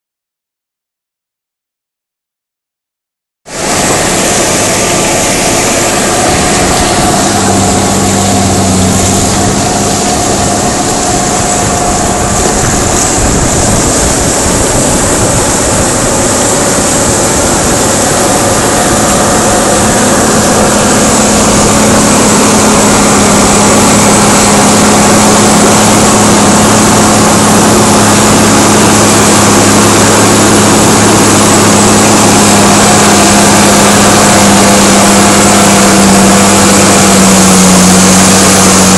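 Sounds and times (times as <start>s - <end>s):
tractor diesel engine under load: 3.5s - 38.9s.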